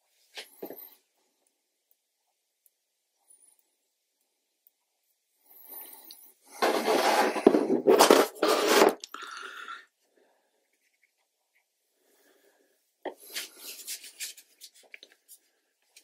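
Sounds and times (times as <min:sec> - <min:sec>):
stiff paper rustling: 0:06.6 - 0:09.0.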